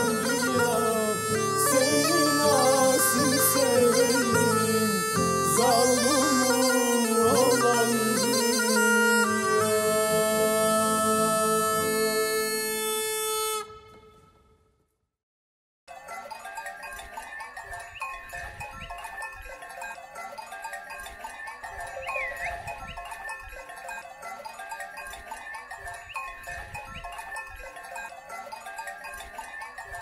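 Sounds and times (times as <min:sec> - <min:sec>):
livestock bells clanking: 0:16.0 - 0:30.0.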